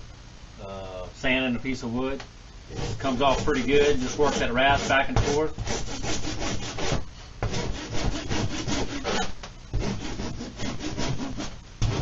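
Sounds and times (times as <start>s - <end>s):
wood rasp scraping: 2.7s - 12.0s.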